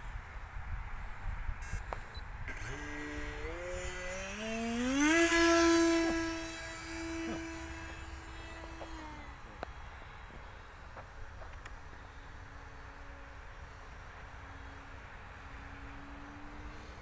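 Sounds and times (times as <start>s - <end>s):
model plane motor whining: 1.6s - 10.5s.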